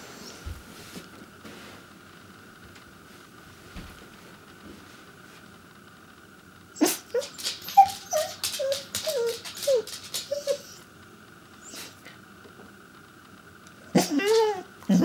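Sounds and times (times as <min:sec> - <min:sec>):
dog whining in short yips: 0:06.8 - 0:10.7.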